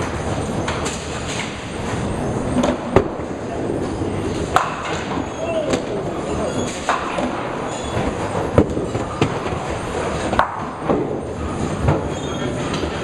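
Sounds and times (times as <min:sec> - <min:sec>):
balls rolling on wooden lanes: 0:00.0 - 0:13.0
balls striking pins: 0:04.4 - 0:05.9, 0:10.2 - 0:13.0.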